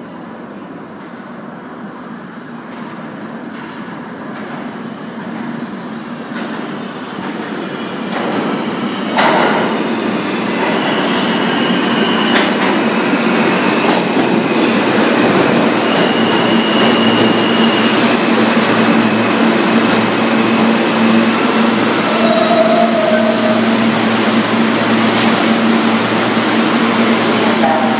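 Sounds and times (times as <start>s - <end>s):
subway train wheels rumbling: 0.0s - 27.9s
train wheels squealing: 8.6s - 14.8s, 15.4s - 21.3s, 22.0s - 24.0s.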